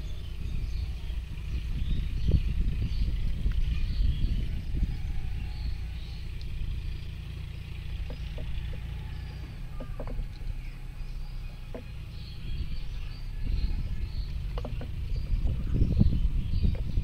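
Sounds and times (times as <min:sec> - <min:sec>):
steady low rumble: 0:00.0 - 0:17.0
small ticks: 0:06.3 - 0:06.6, 0:07.9 - 0:10.6.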